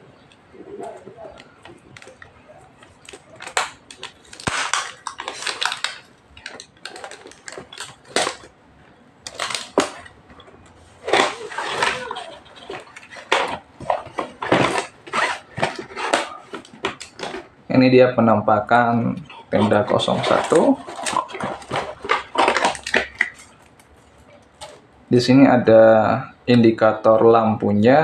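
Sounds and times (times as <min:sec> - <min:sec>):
cardboard box rustling and crackling: 0:10.9 - 0:17.5, 0:19.6 - 0:24.9.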